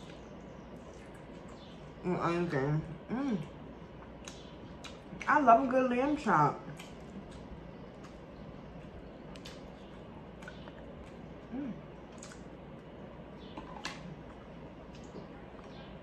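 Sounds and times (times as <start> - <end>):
mouth smacks: 9.3 - 12.5.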